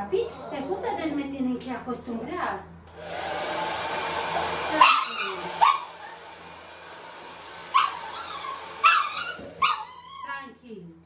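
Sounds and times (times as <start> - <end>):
puppy yelping: 4.8 - 6.3, 7.7 - 10.4.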